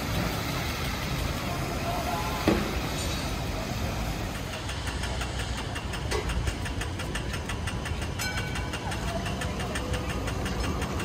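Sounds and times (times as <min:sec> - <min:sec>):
traffic rumble: 0:00.0 - 0:11.0
rapid even ticking: 0:04.2 - 0:11.0.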